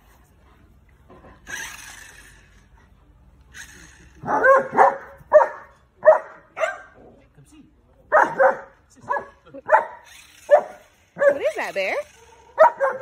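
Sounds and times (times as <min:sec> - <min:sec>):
dog barking: 0:04.2 - 0:07.0, 0:08.1 - 0:11.5, 0:12.4 - 0:13.0.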